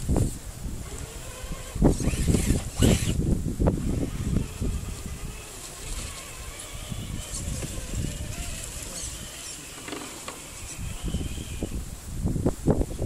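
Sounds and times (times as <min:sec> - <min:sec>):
electric motors whining: 0:00.8 - 0:11.8
drivetrain or stone clicks: 0:05.6 - 0:11.2.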